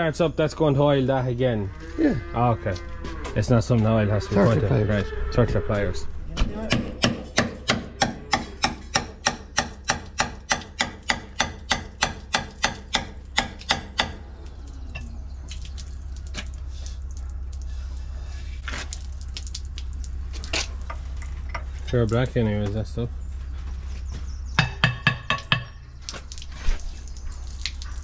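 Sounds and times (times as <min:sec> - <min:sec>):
steady low hum: 0:00.0 - 0:28.0
hammer tapping on metal: 0:06.6 - 0:14.2, 0:24.6 - 0:25.8.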